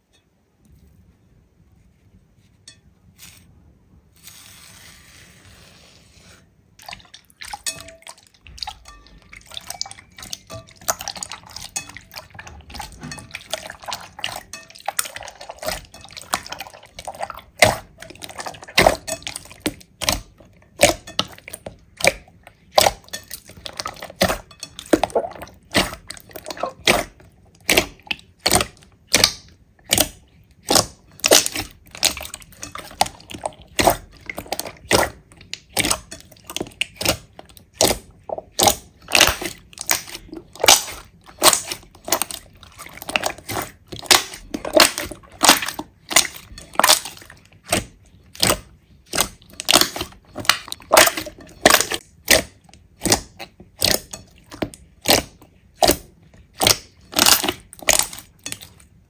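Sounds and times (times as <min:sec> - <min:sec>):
slime squishing and popping: 0:13.8 - 0:58.6.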